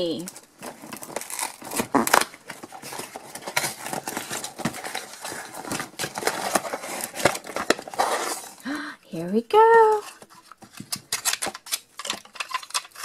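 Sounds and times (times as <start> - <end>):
cardboard box being opened: 0.6 - 8.6.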